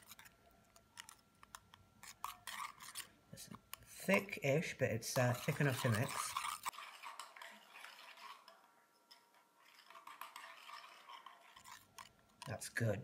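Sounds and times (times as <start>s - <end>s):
whisk scraping and clinking glass: 2.0s - 4.4s, 5.0s - 12.6s.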